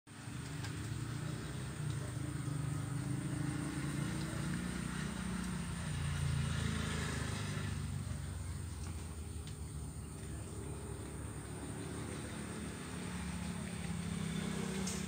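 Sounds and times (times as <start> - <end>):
vehicle engines humming: 0.1 - 15.0.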